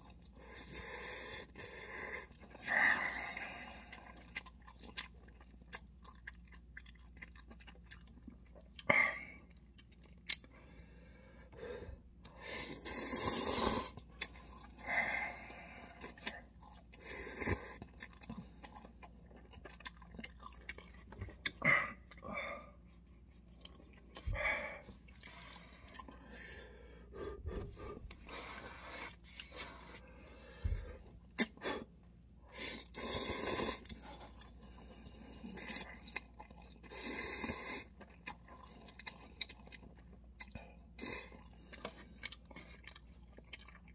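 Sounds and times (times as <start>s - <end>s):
man slurping noodles: 12.4s - 14.0s, 33.0s - 33.9s.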